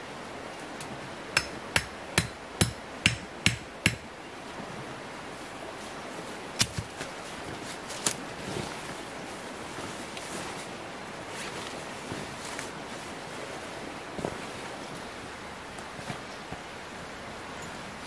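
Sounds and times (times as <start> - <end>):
machete knocking on wooden stake: 1.4 - 4.0.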